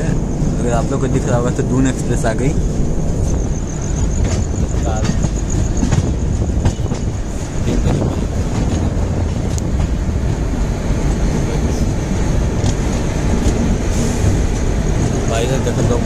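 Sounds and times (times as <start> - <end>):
train wheels rumbling on rails: 0.0 - 16.0
wind on microphone: 0.0 - 16.0
wheels clicking over rail joints: 3.2 - 16.0.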